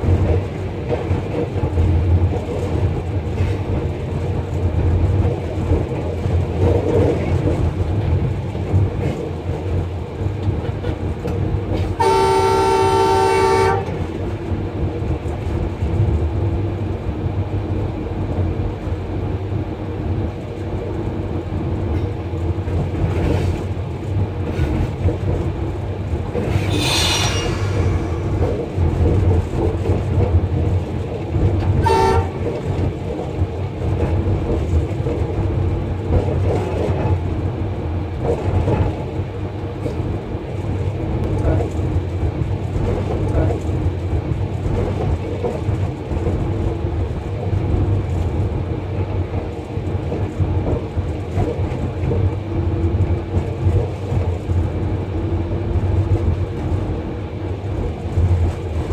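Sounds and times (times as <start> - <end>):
locomotive engine rumble: 0.0 - 58.9
locomotive horn: 12.0 - 14.0, 31.8 - 32.4.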